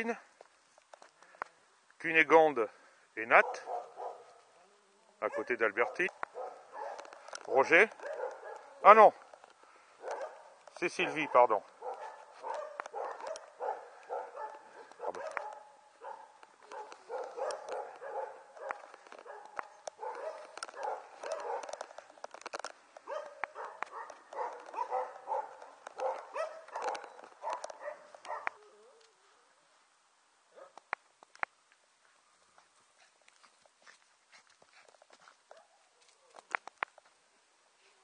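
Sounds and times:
faint clicks: 11.7s - 15.7s, 16.4s - 29.2s.

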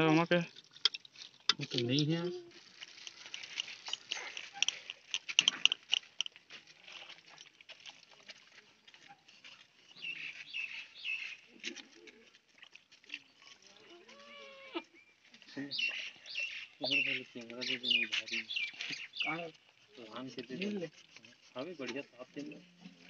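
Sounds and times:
birds chirping: 9.8s - 11.6s, 14.8s - 19.5s.

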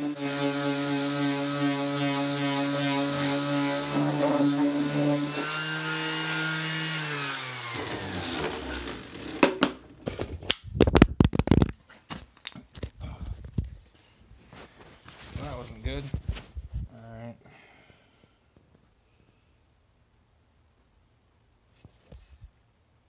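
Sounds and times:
orbital sander on wood: 0.0s - 9.6s.

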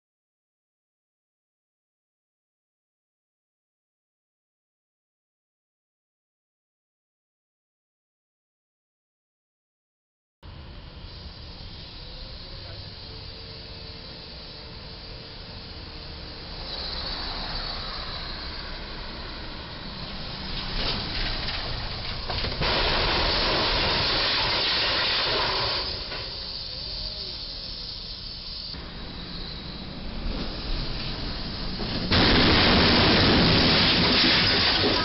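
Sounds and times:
steady background noise: 10.5s - 35.0s.

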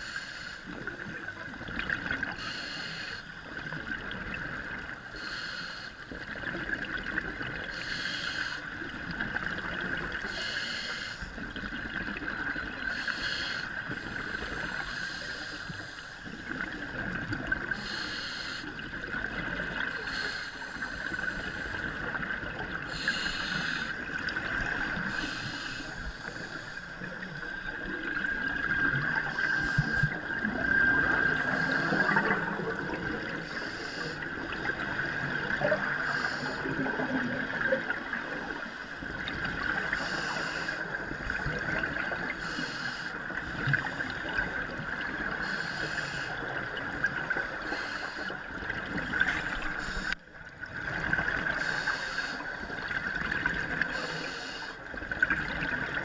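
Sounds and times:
scuba regulator hiss: 0.0s - 0.7s, 2.4s - 3.3s, 5.2s - 6.0s, 7.7s - 8.6s, 10.3s - 11.3s, 12.9s - 13.7s, 14.3s - 16.2s, 17.7s - 18.7s, 20.0s - 22.0s, 22.9s - 24.0s, 25.0s - 26.8s, 29.2s - 30.2s, 31.4s - 32.2s, 33.4s - 34.2s, 36.0s - 36.7s, 39.9s - 41.0s, 42.4s - 43.1s, 45.4s - 46.4s, 47.6s - 48.3s, 49.8s - 50.2s, 51.6s - 52.4s, 53.9s - 54.8s
underwater bubbling: 0.0s - 56.0s.

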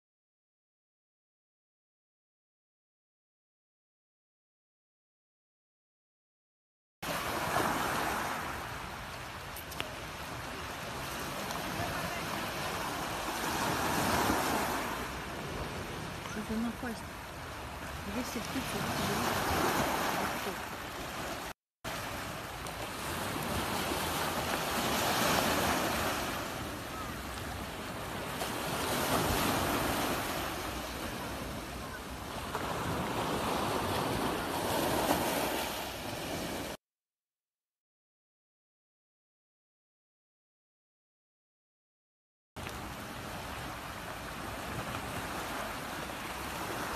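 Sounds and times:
sea waves washing on concrete: 7.0s - 36.8s.

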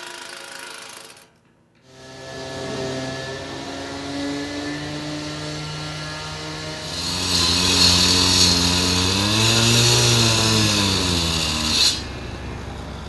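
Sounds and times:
small power tool engine: 0.0s - 13.0s.

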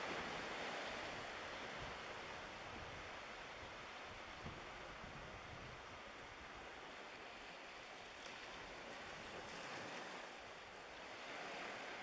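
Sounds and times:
small waves lapping on shore: 0.0s - 12.0s.

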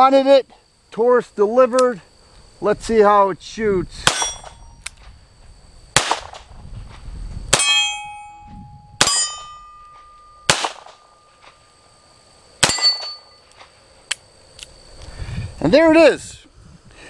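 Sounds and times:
steel targets ringing: 4.0s - 4.8s, 7.5s - 11.6s, 12.6s - 13.5s.

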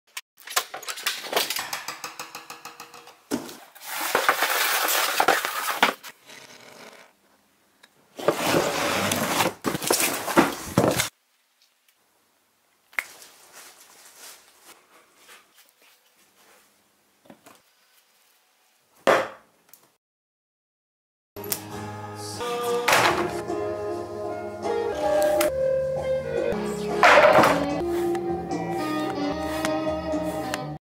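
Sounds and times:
cardboard and plastic wrapping tearing: 3.7s - 6.5s, 8.2s - 11.1s
sharp scrape: 27.2s - 28.2s.

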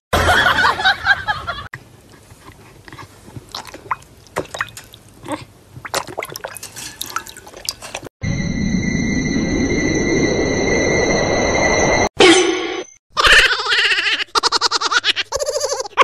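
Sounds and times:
dog splashing water in a bowl: 3.4s - 8.1s.

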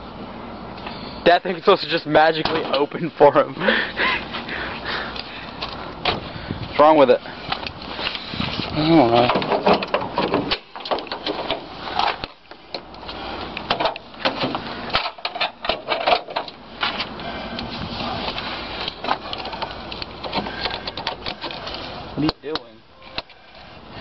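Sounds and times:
metal clicking and clattering: 9.2s - 12.8s, 13.6s - 16.6s.

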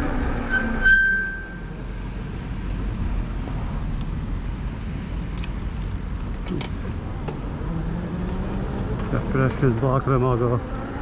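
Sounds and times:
wind and road noise rumble: 0.0s - 11.0s.

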